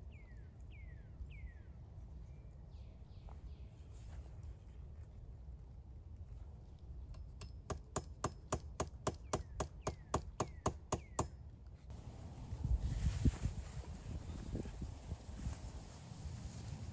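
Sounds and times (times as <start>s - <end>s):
hatchet hammering a nail into wood: 7.1s - 11.4s.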